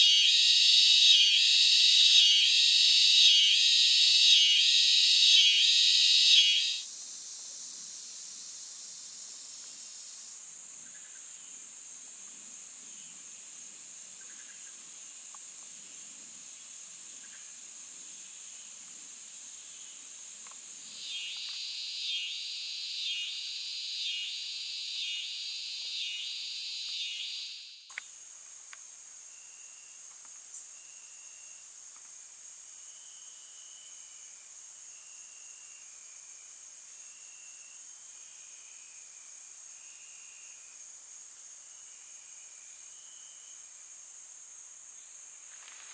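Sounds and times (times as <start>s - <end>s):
high-pitched insect shrill: 0.0s - 6.8s, 21.0s - 27.9s
short insect chirps: 0.0s - 11.5s, 18.3s - 40.8s, 41.7s - 44.0s
rapidly pulsing insect call: 0.0s - 45.9s
faint click: 15.3s - 15.5s, 20.4s - 20.6s, 27.9s - 28.1s.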